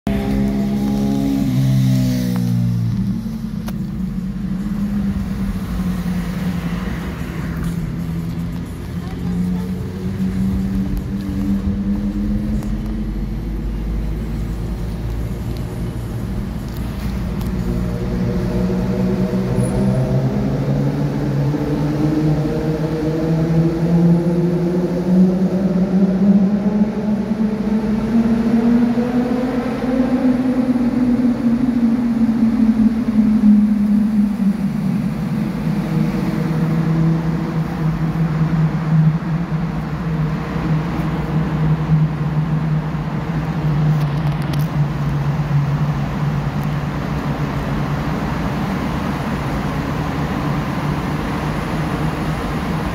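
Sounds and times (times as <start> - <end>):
car engine: 0.0 - 52.9
tyre road rumble: 0.0 - 52.9.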